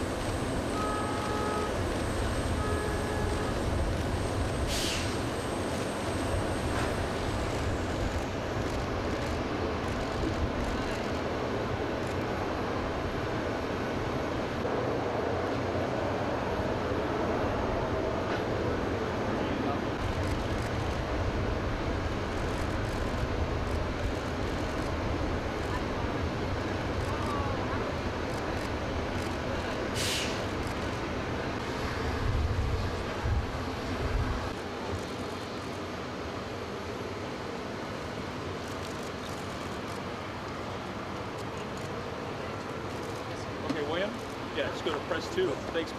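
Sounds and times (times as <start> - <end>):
high engine whine: 0.0 - 45.9
jet engines idling: 0.0 - 45.9
short sharp hiss: 4.6 - 5.2, 29.9 - 30.5.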